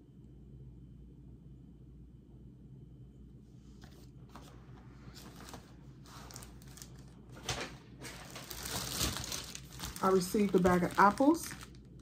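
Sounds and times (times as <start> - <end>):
plastic bag rustling: 5.1 - 12.0.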